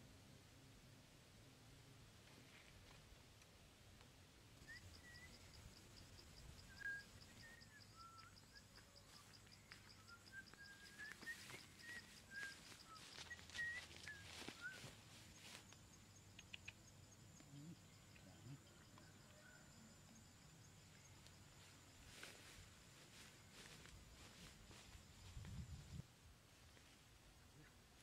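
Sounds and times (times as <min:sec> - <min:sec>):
bird chirps: 0:04.6 - 0:19.6
steady high insect tone: 0:04.6 - 0:26.1.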